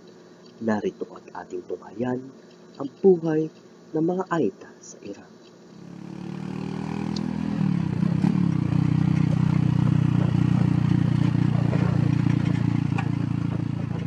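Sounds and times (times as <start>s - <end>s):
motorcycle engine running: 5.8s - 14.0s
light rattling of sidecar body: 11.2s - 14.0s.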